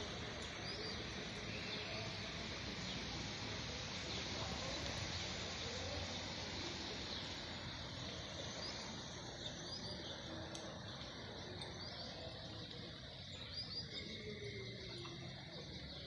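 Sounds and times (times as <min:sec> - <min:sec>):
rain falling on paving and trees: 0:00.0 - 0:16.0
bird chirping: 0:07.0 - 0:16.0.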